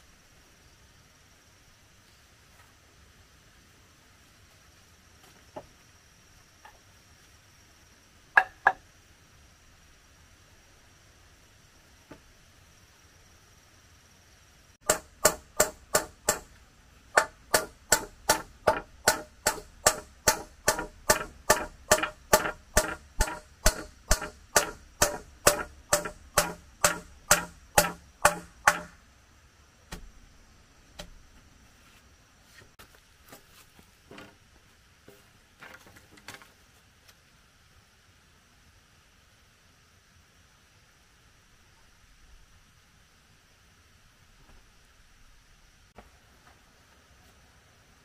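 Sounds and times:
hand tool blows on wood: 17.2s - 29.0s.

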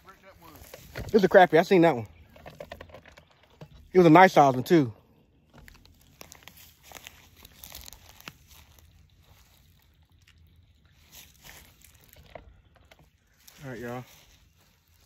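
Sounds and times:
handling noise rustling and clicks: 0.4s - 3.9s.

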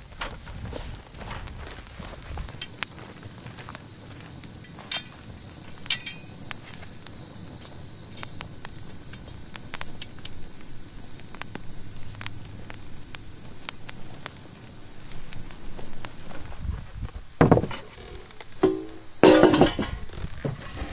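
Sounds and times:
boots shuffling on dry dirt: 0.0s - 5.8s, 13.3s - 20.8s
steady high hiss: 2.5s - 20.9s
wooden sticks knocking together: 18.6s - 20.0s.

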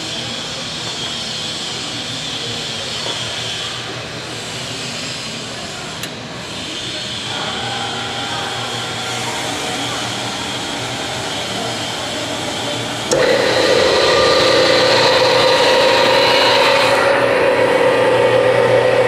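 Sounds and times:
mechanical hum: 0.0s - 19.0s
hydraulic pump motor whine: 7.0s - 19.0s.

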